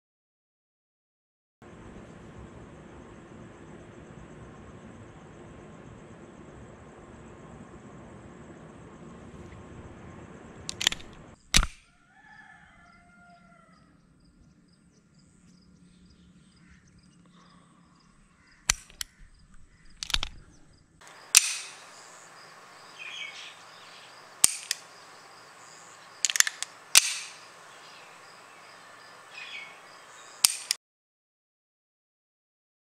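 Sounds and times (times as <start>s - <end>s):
pistol dry-fire clicks: 10.7s - 11.8s, 18.6s - 21.8s, 24.4s - 25.0s, 26.2s - 27.5s, 30.4s - 30.8s
bird chirping: 13.7s - 30.7s.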